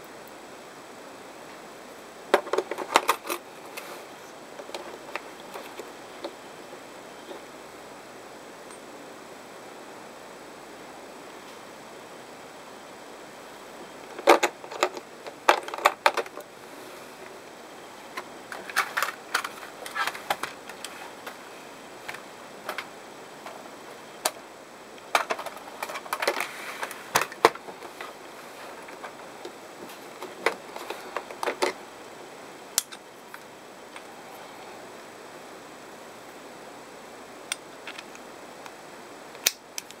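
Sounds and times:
clicks and clatter of plastic: 0:02.3 - 0:03.9, 0:14.1 - 0:16.5, 0:18.2 - 0:21.4, 0:25.0 - 0:28.1, 0:28.7 - 0:31.8.

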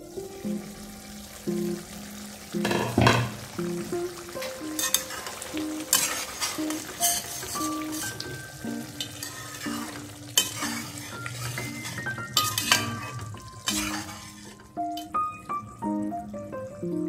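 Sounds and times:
light background music: 0:00.0 - 0:17.0
steady sizzle: 0:00.0 - 0:17.0
spatula scraping steel pan: 0:04.8 - 0:08.4, 0:09.0 - 0:14.7.

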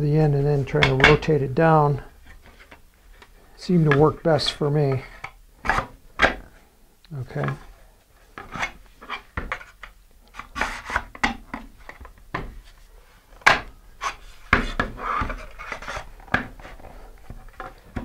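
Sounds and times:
fiberglass scraping and rubbing: 0:07.3 - 0:11.2, 0:13.9 - 0:17.9.

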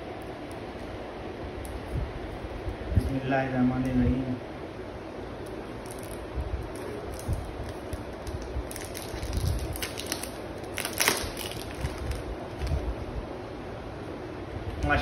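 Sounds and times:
plastic wrap crinkling: 0:05.5 - 0:13.0.

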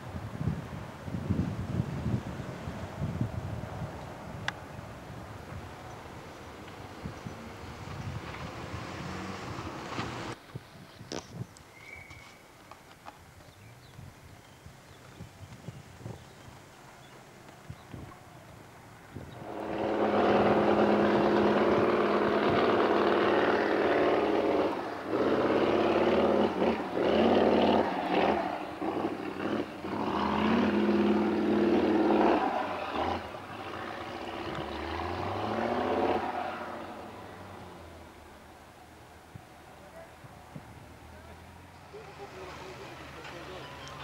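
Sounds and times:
truck engine revving hard: 0:07.8 - 0:10.4, 0:19.4 - 0:38.1.

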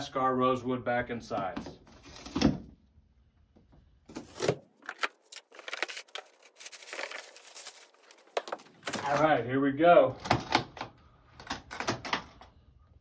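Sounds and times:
cardboard flaps rustling and scraping: 0:04.1 - 0:09.3
cardboard box tearing: 0:04.2 - 0:08.6.

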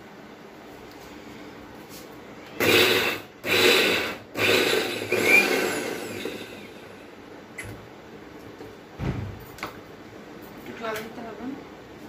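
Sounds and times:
motor winding down: 0:02.6 - 0:07.0
mixer grinder grinding in bursts: 0:02.6 - 0:07.1.

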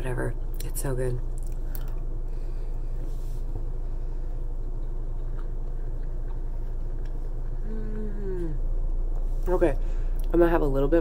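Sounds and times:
low hum: 0:00.0 - 0:11.0
woman humming mmm: 0:07.6 - 0:08.8.

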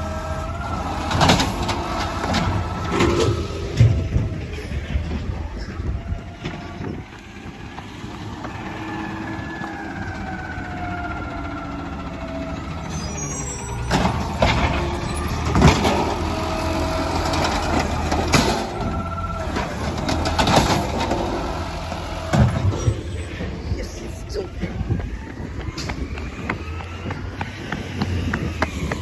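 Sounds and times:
diesel garbage truck engine: 0:00.0 - 0:29.0
high squeal: 0:12.6 - 0:15.5.

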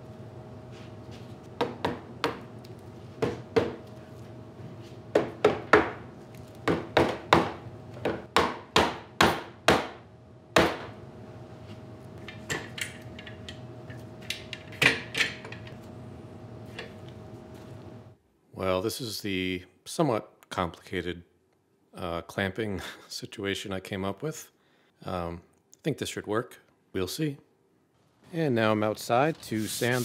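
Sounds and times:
hammer knocking on wood: 0:01.6 - 0:02.5, 0:03.2 - 0:03.8, 0:05.1 - 0:06.0, 0:06.6 - 0:10.0.

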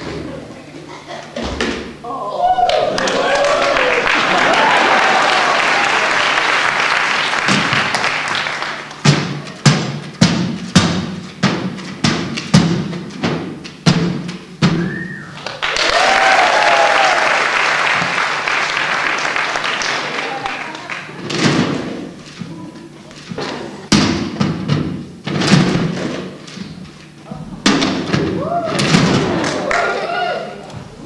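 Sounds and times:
applause: 0:02.6 - 0:09.0, 0:15.3 - 0:21.2.

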